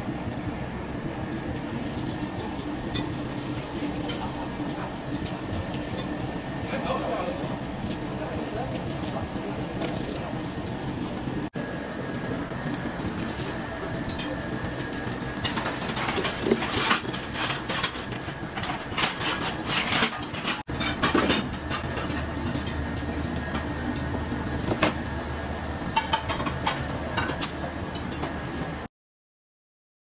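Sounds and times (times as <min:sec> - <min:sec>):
steady hum: 0:00.0 - 0:28.9.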